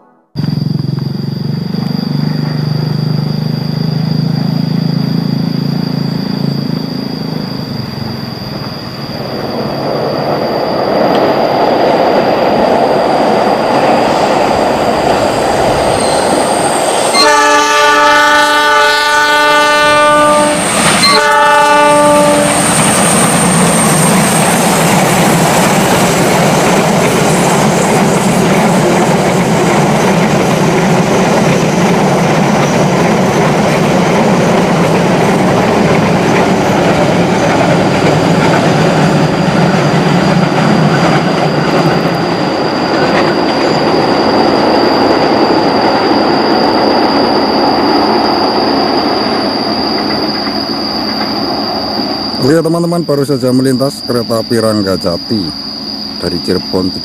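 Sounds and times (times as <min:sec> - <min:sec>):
train wheels rumbling on rails: 0:00.4 - 0:57.0
locomotive horn blasts: 0:17.1 - 0:22.7.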